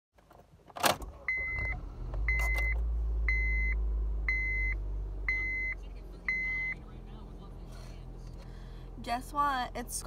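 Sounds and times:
car engine starting and idling: 0:00.2 - 0:10.0
dashboard warning chime beeping: 0:01.2 - 0:06.9.

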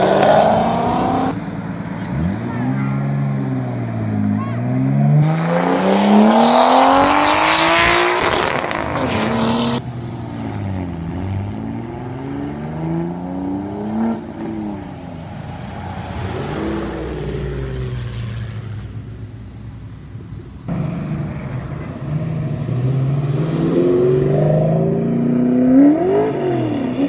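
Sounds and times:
car accelerating hard: 0:02.1 - 0:09.8.

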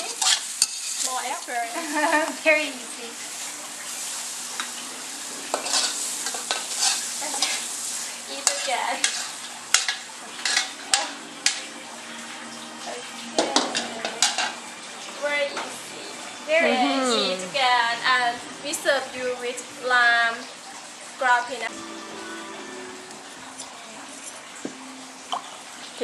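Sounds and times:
metal spatula scraping wok: 0:00.0 - 0:01.4, 0:05.4 - 0:11.8
frying hiss: 0:00.0 - 0:26.0.

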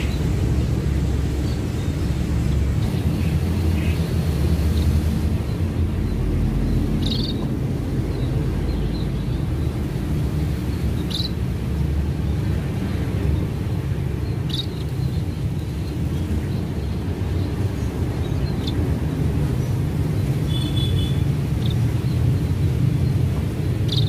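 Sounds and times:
steady low rumble: 0:00.0 - 0:20.3
bird chirps: 0:04.7 - 0:09.7, 0:10.8 - 0:11.4, 0:14.2 - 0:18.8, 0:20.4 - 0:24.0.

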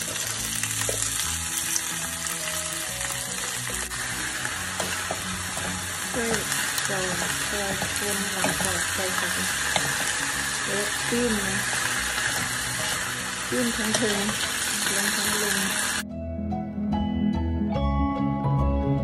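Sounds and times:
greens sizzling in hot oil: 0:00.0 - 0:16.0
wooden spatula stirring: 0:04.7 - 0:10.3.

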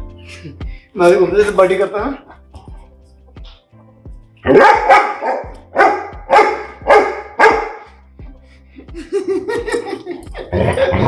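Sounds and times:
dog barking loudly: 0:04.5 - 0:07.9.

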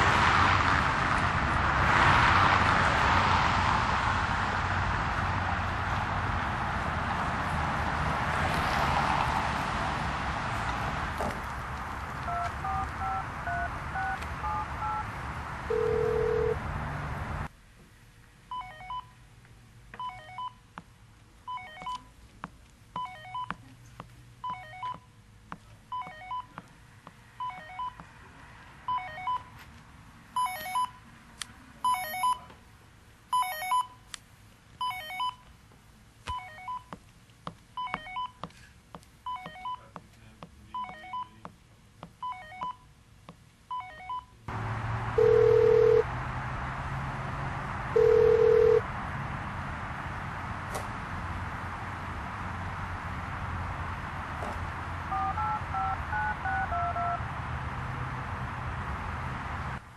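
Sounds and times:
electronic telephone ringer chirping: 0:12.3 - 0:15.0, 0:15.7 - 0:16.6, 0:33.4 - 0:33.9, 0:45.2 - 0:46.0, 0:48.0 - 0:48.8, 0:55.1 - 0:57.2
touch-tone telephone key beeps: 0:12.3 - 0:15.0, 0:18.5 - 0:19.1, 0:20.0 - 0:20.6, 0:21.5 - 0:22.1, 0:23.0 - 0:23.6, 0:24.4 - 0:25.0, 0:26.0 - 0:26.5, 0:27.4 - 0:28.0, 0:28.9 - 0:29.5, 0:30.4 - 0:30.9, 0:33.4 - 0:33.9, 0:34.8 - 0:35.4, 0:36.3 - 0:36.9, 0:37.8 - 0:38.4, 0:39.3 - 0:39.8, 0:40.8 - 0:41.4, 0:42.2 - 0:42.8, 0:43.7 - 0:44.4, 0:55.1 - 0:57.2
steady low telephone tone: 0:12.3 - 0:15.1, 0:15.7 - 0:16.6, 0:45.2 - 0:46.1, 0:48.0 - 0:48.8, 0:55.1 - 0:57.2.

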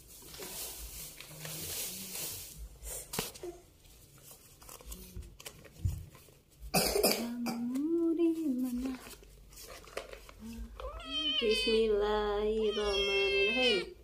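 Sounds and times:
person coughing: 0:06.7 - 0:07.7
cat meowing: 0:10.8 - 0:11.9, 0:12.6 - 0:14.0.

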